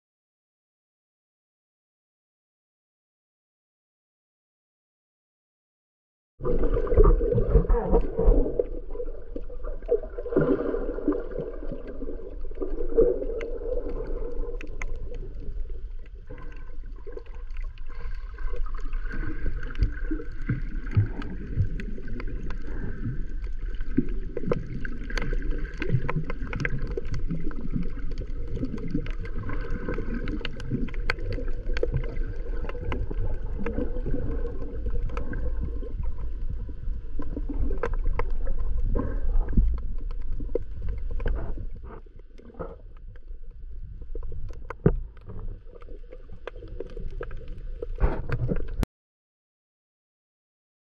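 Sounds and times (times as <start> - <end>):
underwater rumble: 6.4 - 48.8
crackling clicks: 12.4 - 36.2, 37.2 - 38.8, 39.4 - 48.8.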